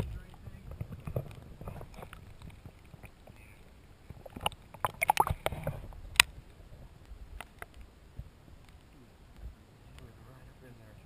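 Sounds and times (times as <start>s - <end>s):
water sloshing and splashing: 0.0s - 7.9s.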